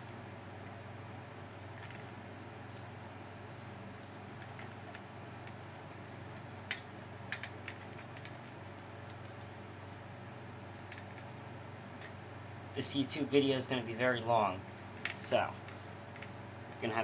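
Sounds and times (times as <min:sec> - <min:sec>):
steady low hum: 0:00.0 - 0:17.0
clicks of handling wires: 0:04.0 - 0:09.5, 0:14.6 - 0:16.9.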